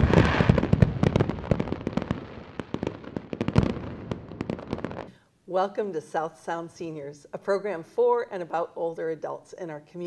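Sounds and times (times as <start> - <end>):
loud firework bang: 0.0 - 5.1
fireworks crackling and popping: 0.0 - 5.2.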